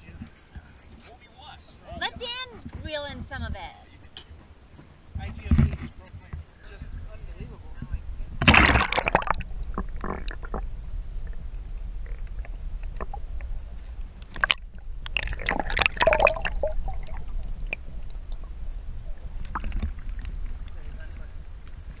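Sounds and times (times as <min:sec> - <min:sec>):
low underwater rumble: 0:05.1 - 0:22.0
water splashing and gurgling: 0:08.4 - 0:22.0.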